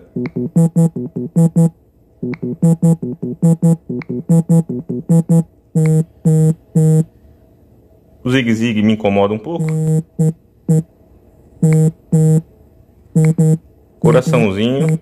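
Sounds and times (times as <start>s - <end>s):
phone vibration buzzes: 0.2s - 7.1s, 9.6s - 10.9s, 11.6s - 12.5s, 13.2s - 13.6s.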